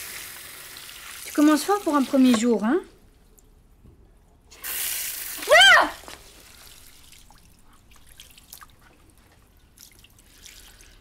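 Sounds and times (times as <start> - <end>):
tap water running: 0.0 - 2.7, 4.5 - 8.6
faint drips: 5.3 - 11.0.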